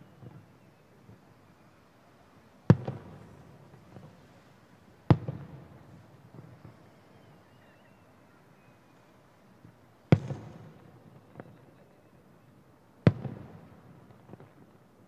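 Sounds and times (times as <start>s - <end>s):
small firework crack: 2.6s - 7.6s, 9.6s - 11.9s, 13.0s - 15.0s
fireworks booming with echoes: 2.7s - 4.4s, 5.0s - 7.4s, 10.1s - 11.9s, 13.0s - 14.8s.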